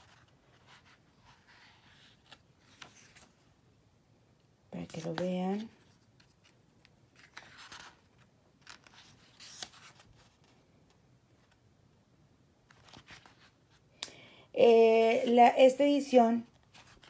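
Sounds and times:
book pages turning: 0.0 - 3.5, 4.8 - 11.6, 12.6 - 13.9, 16.4 - 17.0.

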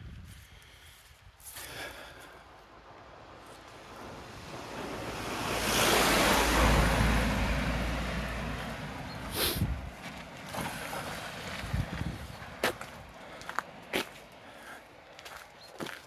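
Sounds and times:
delivery van driving past: 3.8 - 12.6
footsteps: 8.6 - 16.0.

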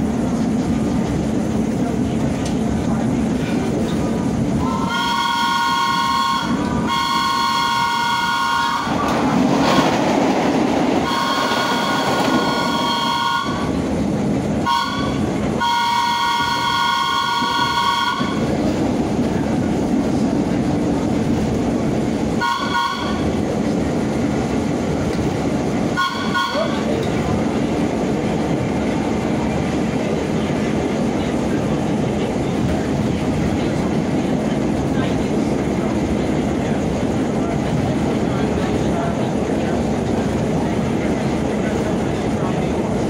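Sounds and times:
train rumbling on rails: 0.0 - 43.0
train multi-tone horn blasts: 4.6 - 9.9, 11.0 - 13.8, 14.6 - 18.6, 22.4 - 23.4, 25.9 - 27.0.

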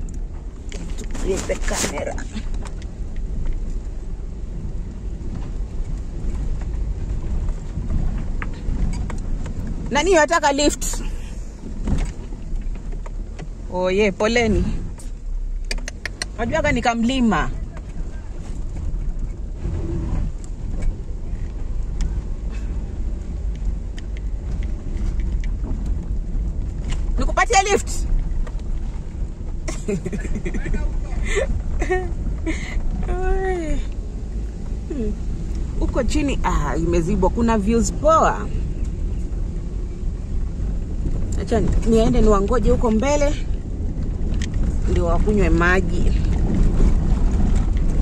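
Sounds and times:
car engine and road noise: 0.0 - 48.0.

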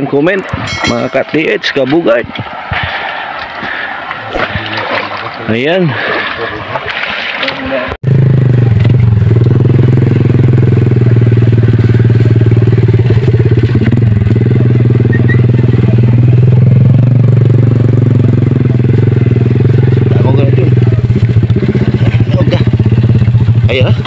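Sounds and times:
motorcycle engine running: 8.0 - 24.0.

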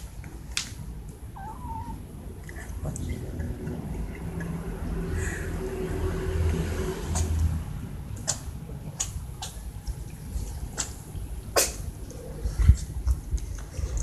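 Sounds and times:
cats chewing: 8.2 - 14.0.

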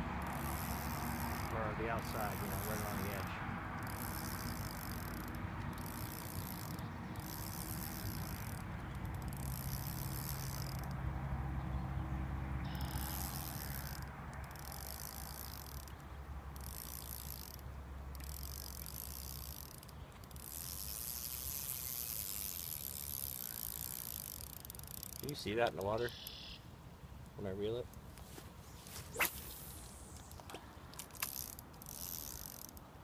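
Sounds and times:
fishing reel whirring and clicking: 0.2 - 11.0, 12.6 - 26.5, 29.4 - 33.0.

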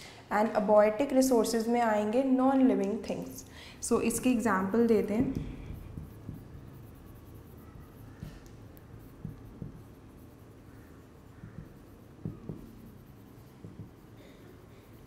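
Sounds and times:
marker squeaking on whiteboard: 4.0 - 15.0.

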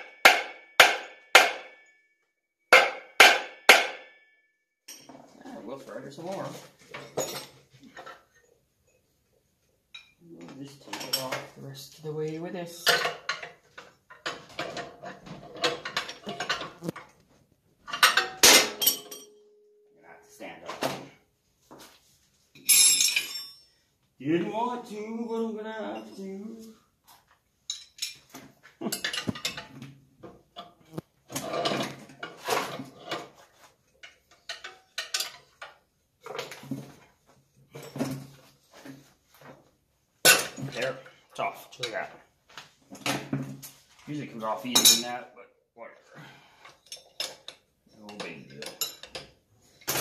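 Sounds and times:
metal tool clatter: 4.9 - 5.3, 6.9 - 9.0, 9.9 - 11.5, 12.8 - 17.1, 17.8 - 19.5, 22.6 - 23.8, 27.7 - 29.8, 30.6 - 37.0, 46.6 - 50.0.

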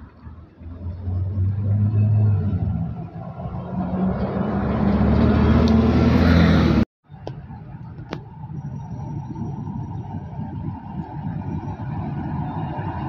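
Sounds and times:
bus driving past: 0.0 - 6.8
quiet street background: 0.0 - 13.0.

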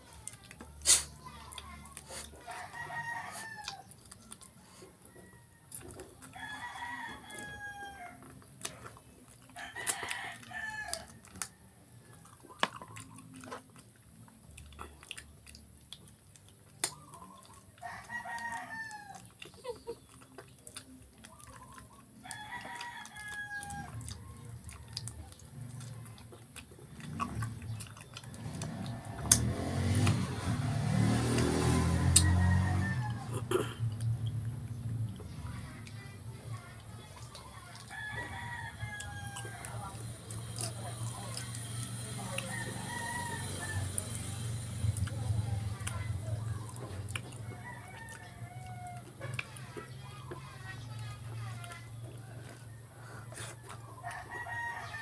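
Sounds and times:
rooster crowing: 2.4 - 4.0, 5.0 - 8.3, 9.6 - 11.7, 17.8 - 19.2, 22.2 - 25.3, 28.6 - 33.4, 37.7 - 40.0, 42.1 - 44.3, 47.4 - 49.1, 52.4 - 55.0
chickens pecking clicks: 27.1 - 30.2.

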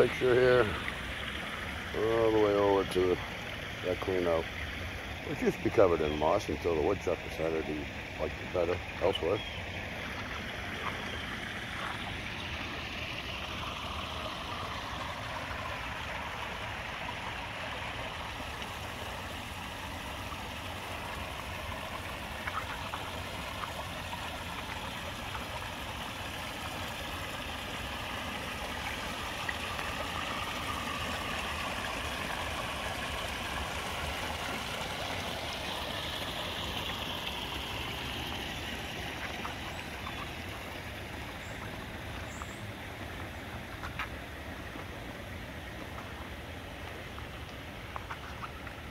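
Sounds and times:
waterfall splashing: 9.9 - 48.0.

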